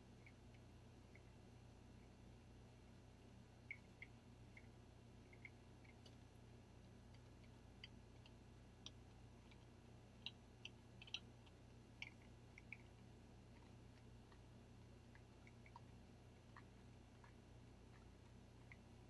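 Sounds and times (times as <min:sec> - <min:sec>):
derma roller clicking on skin: 0:07.1 - 0:19.0.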